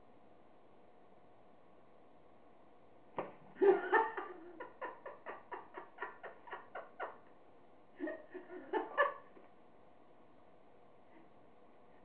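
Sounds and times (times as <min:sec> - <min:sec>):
person laughing: 0:03.6 - 0:07.3.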